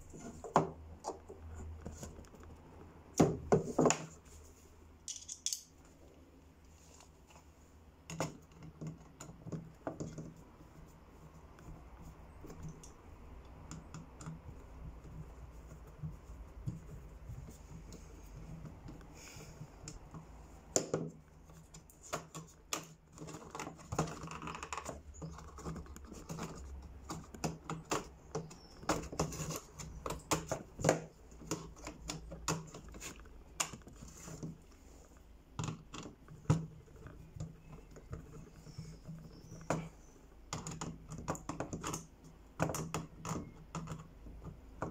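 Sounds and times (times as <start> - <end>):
small parts clicking and scraping: 5.0 - 6.0.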